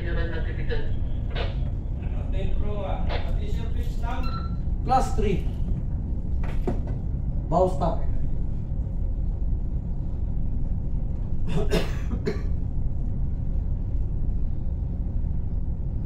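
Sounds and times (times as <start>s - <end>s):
ship engine rumble: 0.0s - 16.0s
person coughing: 11.5s - 12.6s.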